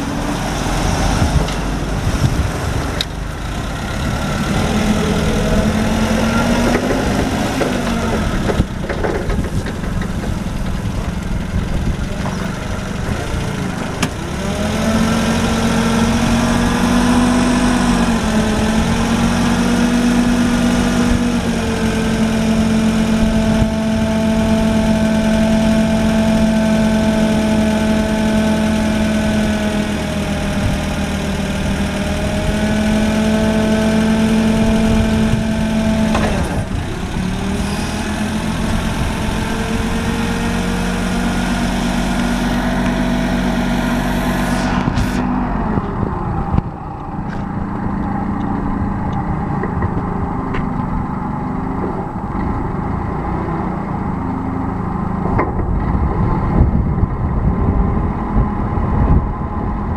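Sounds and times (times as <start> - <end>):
forklift engine running: 0.0 - 59.9.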